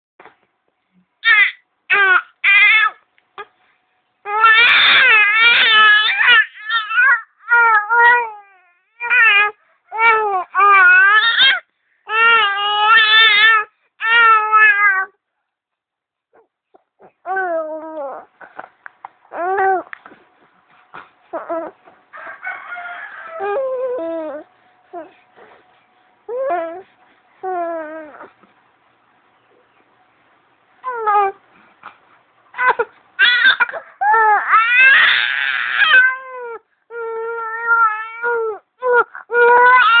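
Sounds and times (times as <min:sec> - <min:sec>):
baby crying: 0:01.2 - 0:03.0, 0:04.3 - 0:15.2, 0:16.4 - 0:18.3, 0:19.3 - 0:19.9, 0:21.3 - 0:21.8, 0:23.3 - 0:25.2, 0:26.3 - 0:28.4, 0:30.8 - 0:31.4, 0:32.6 - 0:40.0.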